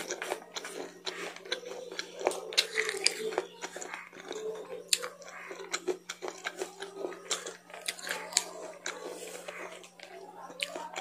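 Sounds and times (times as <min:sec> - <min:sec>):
chewing crunchy food: 0:00.0 - 0:11.0
faint low hum: 0:00.0 - 0:11.0.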